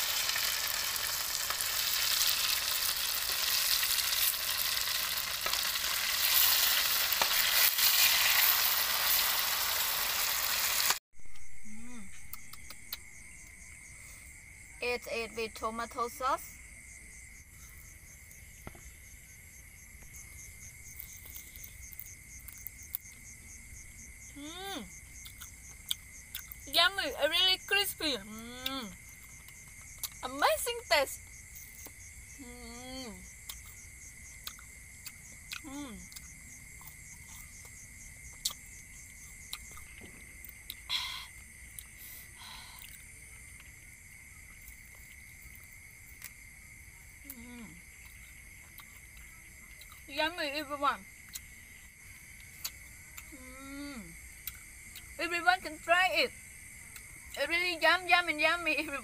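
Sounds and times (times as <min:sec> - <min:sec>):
crickets chirping: 0:00.0 - 0:59.0.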